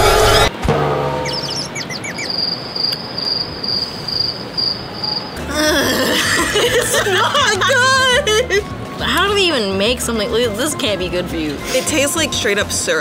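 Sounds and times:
warbling music cue: 0:00.0 - 0:02.4
bird-like chirps: 0:01.2 - 0:05.4
cricket chirping: 0:01.3 - 0:05.4.

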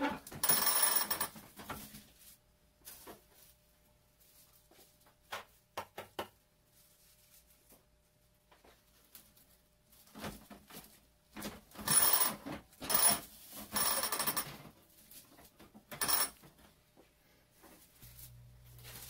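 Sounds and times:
broom straws rustling and swishing: 0:01.8 - 0:05.2, 0:06.6 - 0:08.2, 0:17.5 - 0:19.0.

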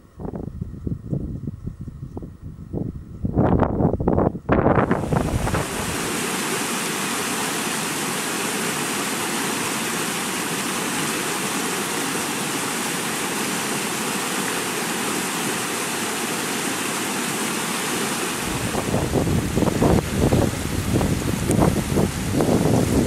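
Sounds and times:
wind buffeting microphone: 0:00.0 - 0:06.2, 0:18.4 - 0:23.0
water rushing over rocks: 0:04.8 - 0:23.0.

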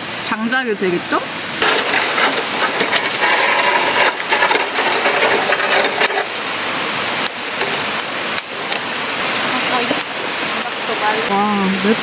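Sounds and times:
stream rushing: 0:00.0 - 0:12.0
metal grill grate clattering: 0:01.6 - 0:06.4.

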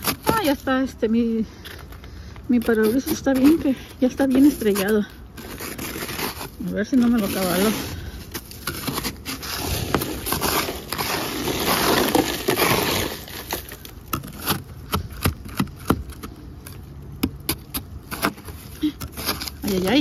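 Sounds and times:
ice scraper scraping windshield ice: 0:00.0 - 0:00.9, 0:02.5 - 0:20.0
ice chunks cracking: 0:04.1 - 0:16.8.

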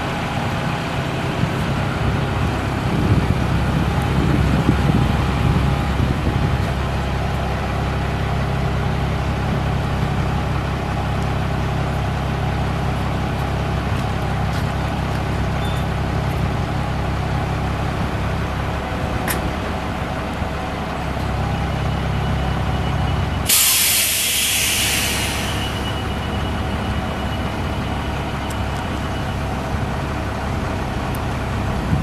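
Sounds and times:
diesel truck engine idling: 0:00.0 - 0:32.0
air brake hiss: 0:23.4 - 0:26.0.

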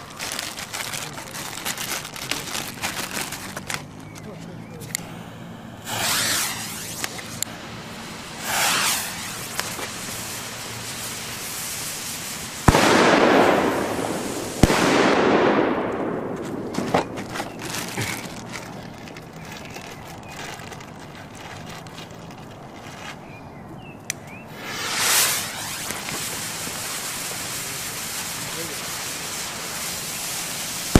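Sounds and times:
fuse fizzing and sparking: 0:00.0 - 0:22.3, 0:24.5 - 0:30.9
firecracker bangs with echo: 0:05.8 - 0:07.4, 0:08.4 - 0:10.3, 0:12.6 - 0:17.4.

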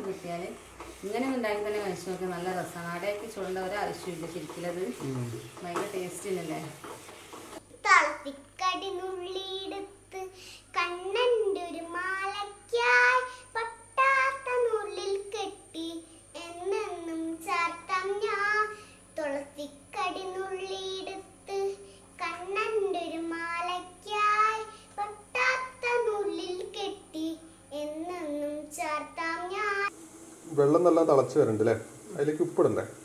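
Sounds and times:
little girl singing: 0:07.8 - 0:29.9.

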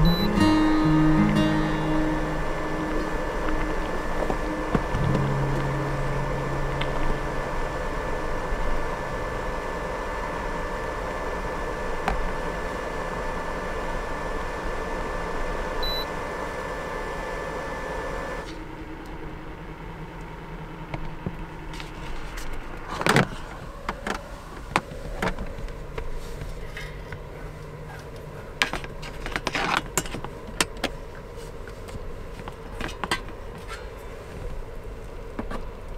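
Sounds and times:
short high electronic beep: 0:00.0 - 0:07.7, 0:15.8 - 0:16.0
fan hum: 0:00.0 - 0:35.9.

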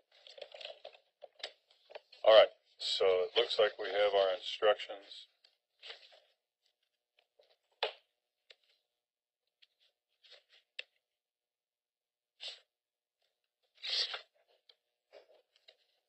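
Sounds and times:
papers rustling: 0:00.0 - 0:02.2, 0:05.8 - 0:06.4.

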